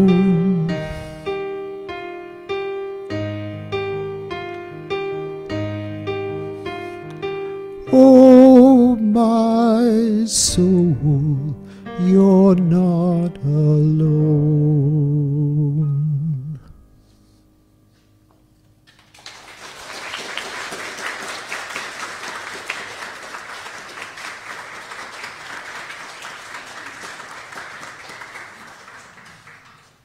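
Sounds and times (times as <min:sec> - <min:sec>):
piano: 0:00.0 - 0:30.0
congregation applauding: 0:18.9 - 0:30.0.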